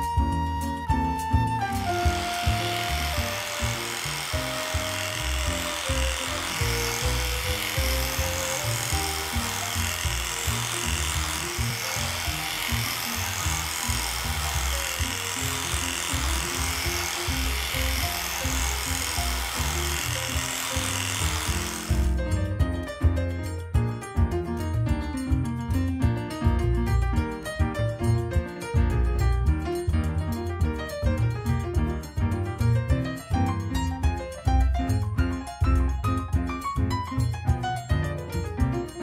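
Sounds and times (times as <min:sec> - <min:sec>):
background music: 0:00.0 - 0:39.0
electric clipper buzzing: 0:01.6 - 0:22.2.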